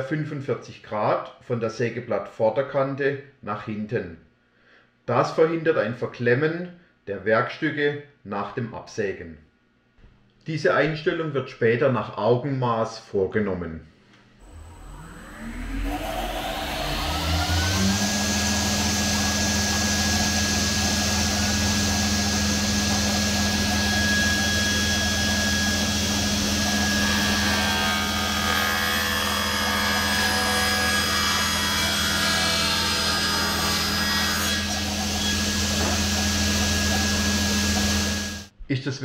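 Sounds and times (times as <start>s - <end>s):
circular saw running: 14.4s - 38.5s
saw blade ripping wood board: 34.6s - 36.3s.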